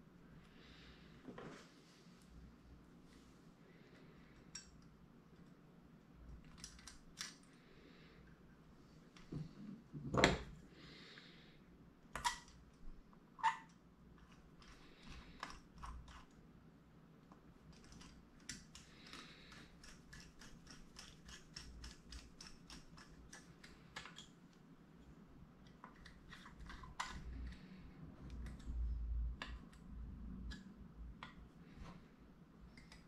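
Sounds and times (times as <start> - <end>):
small metal parts clicking: 6.4 - 7.5, 17.7 - 24.3.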